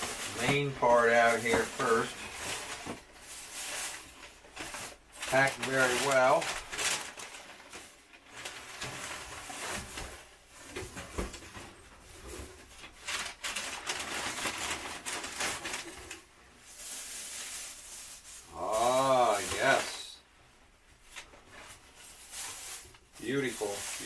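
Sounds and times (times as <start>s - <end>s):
paper and cardboard rustling: 0.0s - 20.1s, 21.0s - 24.0s.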